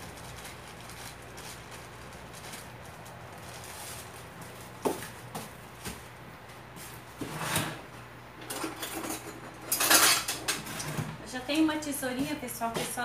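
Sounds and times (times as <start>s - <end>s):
kitchen drawer opening: 7.2s - 7.9s, 8.5s - 11.2s.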